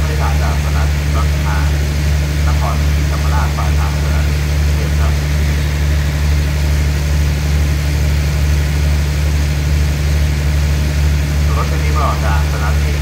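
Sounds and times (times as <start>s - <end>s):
diesel train engine idling: 0.0s - 13.0s.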